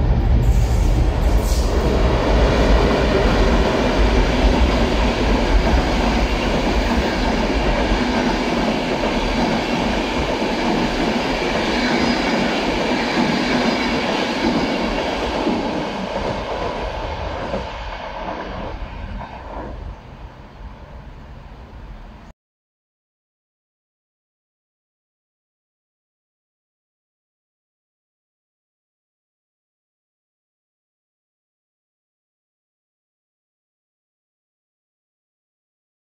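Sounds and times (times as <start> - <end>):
electric train passing: 0.0 - 22.3
wheels rumbling on rails: 0.0 - 22.3.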